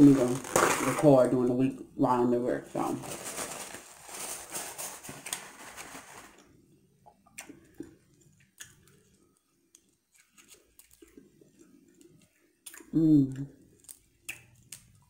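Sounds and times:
paper napkin rustling: 2.7s - 6.4s.

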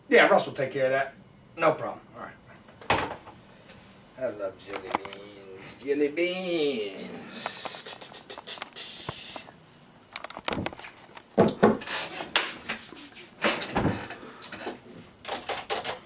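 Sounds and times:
hard objects knocking and clattering: 10.2s - 12.6s.

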